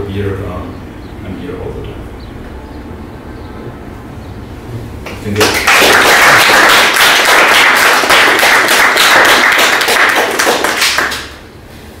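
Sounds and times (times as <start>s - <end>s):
audience applauding: 5.1s - 11.4s.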